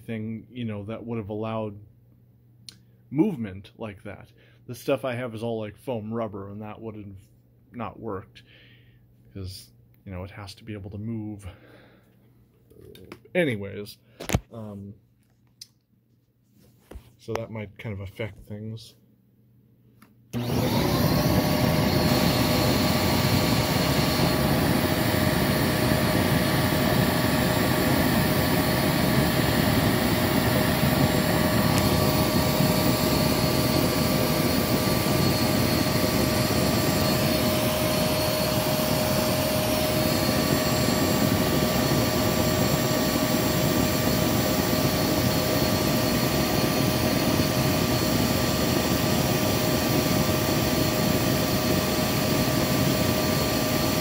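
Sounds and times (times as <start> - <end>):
vacuum cleaner motor whining: 20.3 - 54.0.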